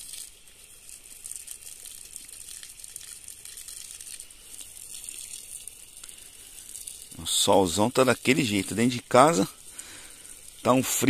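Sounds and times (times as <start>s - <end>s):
hose water spraying on soil: 0.0s - 11.0s.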